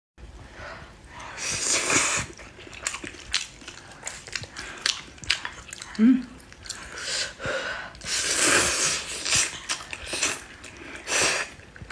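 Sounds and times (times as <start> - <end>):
chewing: 2.2 - 7.0, 9.0 - 11.9.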